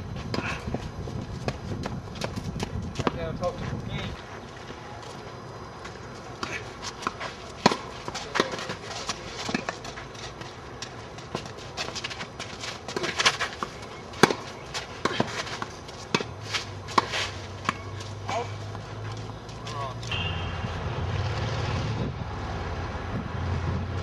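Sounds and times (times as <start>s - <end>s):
footsteps on clay: 0.2s - 20.2s
rackets striking tennis ball: 1.4s - 3.3s, 5.8s - 20.6s
tennis ball bouncing: 3.0s - 3.2s, 5.8s - 16.3s, 16.9s - 20.4s.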